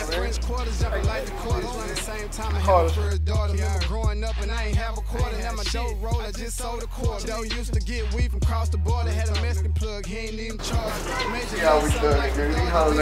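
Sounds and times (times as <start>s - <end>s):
deep bass line: 0.0s - 13.0s
rapping over a beat: 0.0s - 13.0s.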